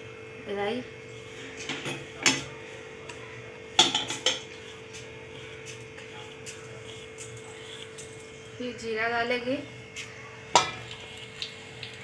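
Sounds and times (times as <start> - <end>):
steel kitchenware clinking: 10.6 - 10.9.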